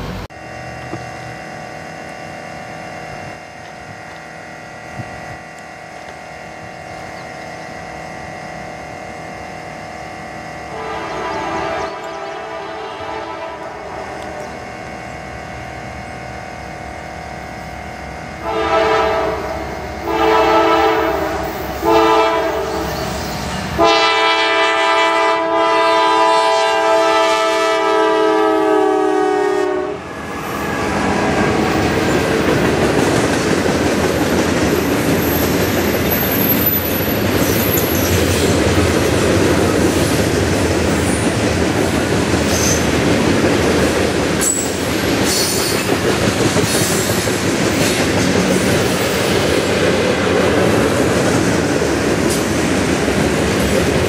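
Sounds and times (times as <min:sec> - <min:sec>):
locomotive horn blasts: 0:10.6 - 0:15.0, 0:18.4 - 0:31.8
freight cars clickety-clack: 0:30.4 - 0:54.0
wheel squeals: 0:34.7 - 0:38.6, 0:42.4 - 0:43.0, 0:44.4 - 0:45.9.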